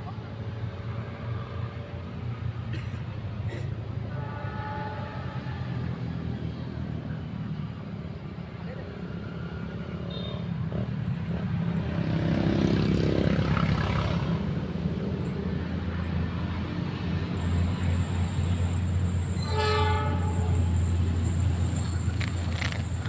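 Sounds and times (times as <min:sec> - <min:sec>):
train horn blast: 0:04.0 - 0:06.1, 0:17.6 - 0:21.6
locomotive engine rumble: 0:16.0 - 0:23.0.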